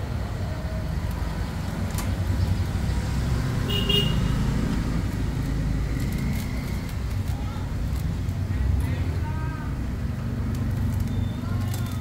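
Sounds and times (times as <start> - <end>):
vehicle engine rumbling: 0.0 - 12.0
high horn toot: 3.7 - 4.3.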